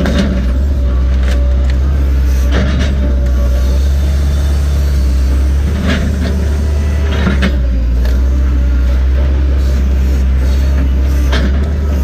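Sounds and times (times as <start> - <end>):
diesel engine loud low drone: 0.0 - 12.0.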